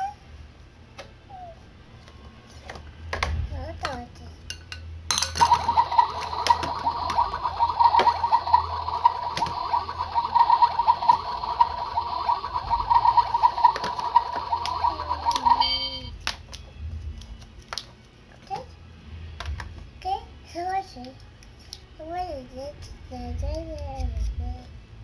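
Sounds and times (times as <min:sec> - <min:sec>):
trilling electronic ring: 0:05.3 - 0:16.1.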